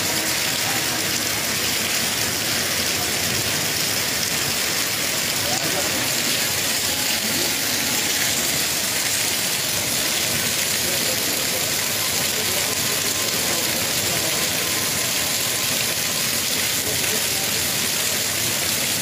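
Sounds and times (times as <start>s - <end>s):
hail and heavy rain: 0.0s - 19.0s.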